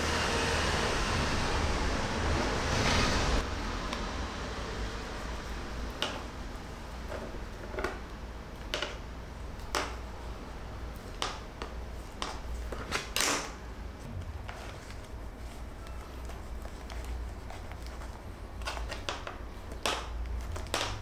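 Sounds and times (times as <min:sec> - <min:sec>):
bone folder tapping and scraping: 0:15.8 - 0:21.0.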